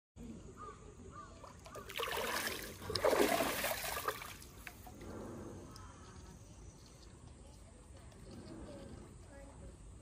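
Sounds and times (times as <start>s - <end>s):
water splashing and sloshing: 1.4s - 5.3s.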